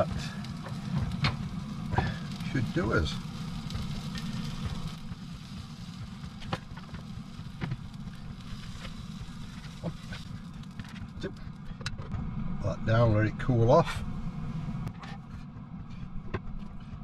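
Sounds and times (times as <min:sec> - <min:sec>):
low rumble: 0:00.0 - 0:17.0.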